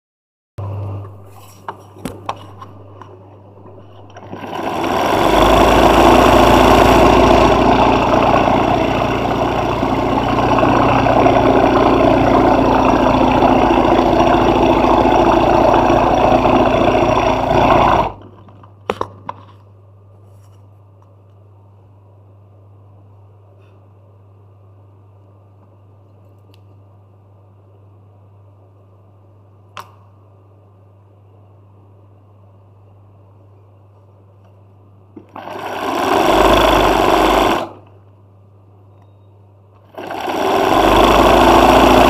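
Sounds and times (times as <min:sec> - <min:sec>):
low steady hum: 0:00.6 - 0:35.4
sewing machine stitching: 0:03.7 - 0:18.3, 0:35.3 - 0:37.8, 0:39.8 - 0:42.0.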